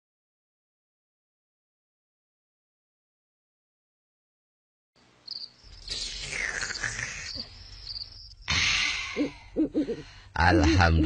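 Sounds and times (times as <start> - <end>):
soft background hiss: 5.0 - 11.0
crickets chirping: 5.2 - 10.2.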